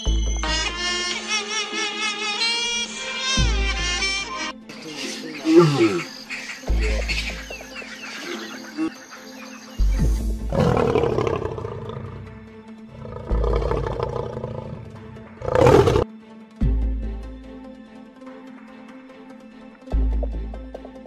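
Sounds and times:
background music: 0.0s - 21.0s
lions roaring: 10.5s - 12.2s, 12.9s - 16.0s.

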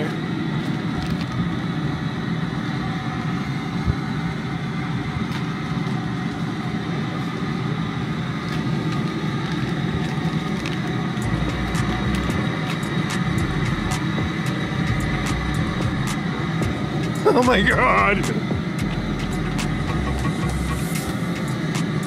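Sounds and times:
gas burner rushing: 0.0s - 22.0s
water boiling in a pot: 0.3s - 14.4s.

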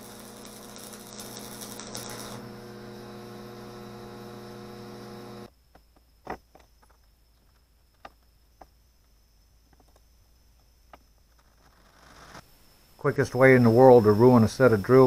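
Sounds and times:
welding arc buzzing: 0.0s - 5.5s.

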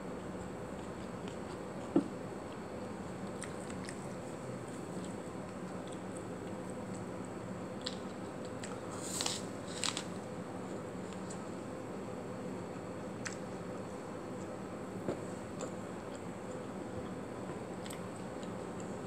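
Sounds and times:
crisp apple crunch: 7.8s - 10.2s.

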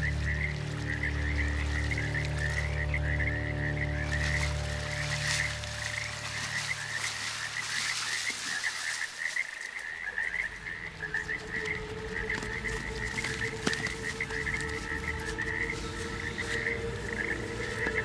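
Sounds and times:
frogs chirping: 0.0s - 18.0s
steady low tone: 10.3s - 18.0s.

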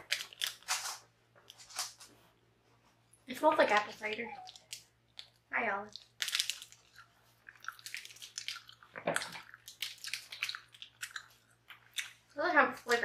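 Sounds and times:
foil wrapper crinkling: 0.0s - 2.1s, 6.0s - 7.0s.

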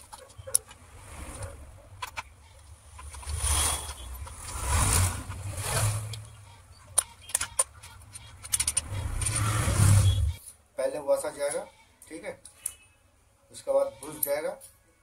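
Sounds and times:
metal engine parts clinking: 2.0s - 10.2s.

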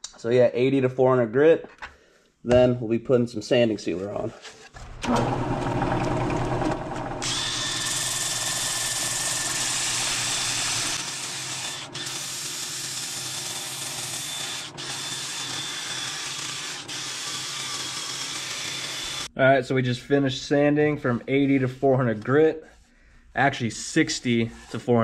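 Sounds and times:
wood lathe humming: 5.0s - 19.3s
drill high whine: 5.1s - 19.3s
sanding disc rasping wood: 7.2s - 19.3s.

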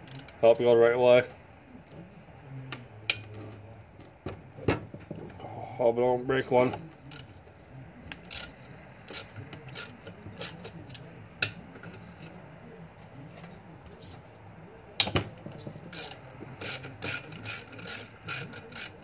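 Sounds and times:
ratchet wrench clicking: 8.1s - 8.5s, 9.1s - 10.7s, 15.9s - 19.0s.

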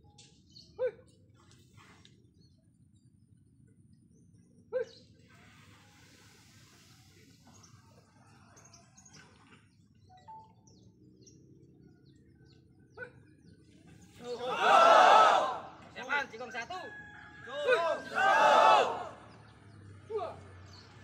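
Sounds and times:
faint bird chirps: 4.1s - 14.3s.

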